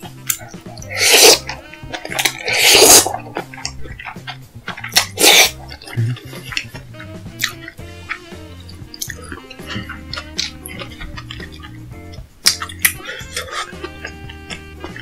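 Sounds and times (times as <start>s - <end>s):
soft background music: 0.0s - 15.0s
loud slurping of noodles: 0.8s - 3.8s, 4.8s - 6.7s.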